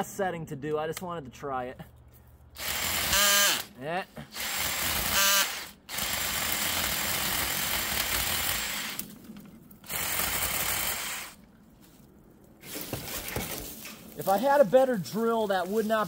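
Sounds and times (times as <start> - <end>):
chainsaw attachment cutting branch: 4.3 - 9.2, 9.8 - 11.4.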